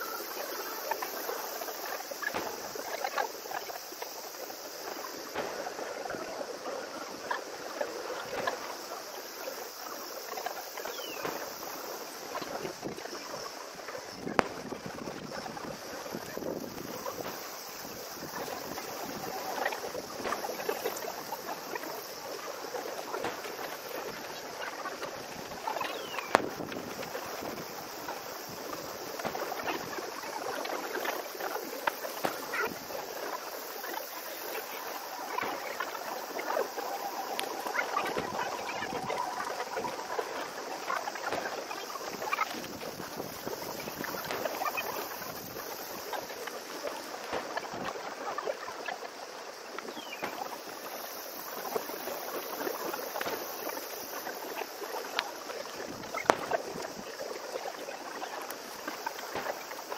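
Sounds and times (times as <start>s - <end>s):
distant fireworks popping: 0.0s - 59.9s
outdoor background hiss: 0.0s - 59.9s
wind: 0.0s - 59.9s.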